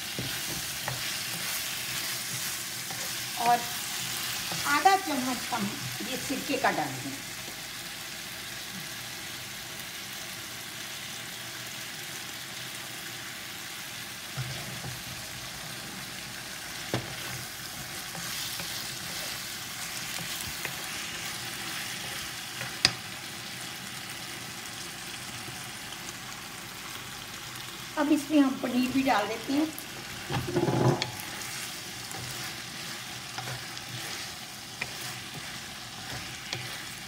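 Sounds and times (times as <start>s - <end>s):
vegetables sizzling in a pan: 0.0s - 37.0s
spatula scraping a pan: 0.1s - 5.9s, 14.4s - 15.8s, 16.9s - 23.0s, 30.0s - 37.0s.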